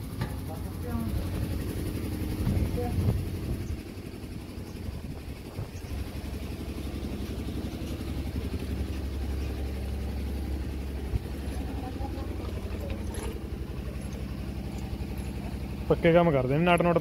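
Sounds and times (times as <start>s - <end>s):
engine idling: 0.0s - 17.0s.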